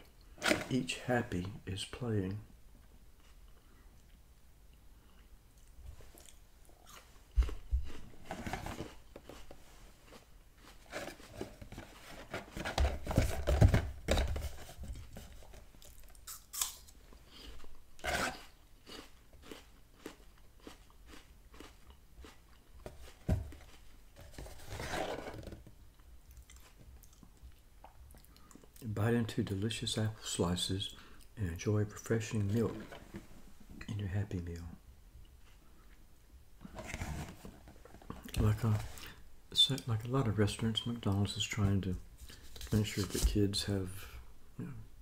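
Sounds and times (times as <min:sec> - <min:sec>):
chewing and crunching apple: 0:05.1 - 0:11.6, 0:15.5 - 0:24.0, 0:25.9 - 0:28.9
cardboard box thumps and rustles: 0:11.4 - 0:14.7.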